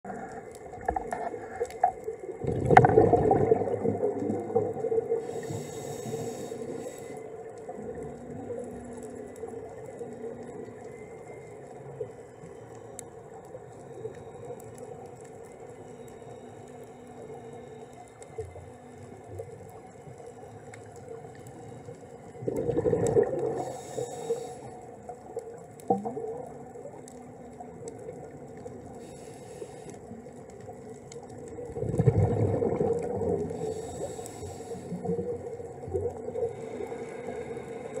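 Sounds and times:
underwater low hum: 0:00.0 - 0:38.0
regulator bubbles gurgling: 0:00.1 - 0:05.7, 0:22.2 - 0:24.1, 0:31.3 - 0:34.2
faint underwater clicks: 0:00.1 - 0:38.0
breath hiss through regulator: 0:05.0 - 0:07.4, 0:23.2 - 0:25.0, 0:29.0 - 0:30.1, 0:33.4 - 0:35.4, 0:36.3 - 0:38.0.

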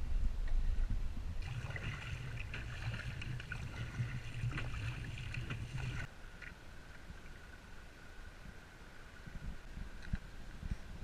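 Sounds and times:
paddle strokes sloshing: 0:01.4 - 0:06.1
water splashing against kayak hull: 0:01.4 - 0:07.6.

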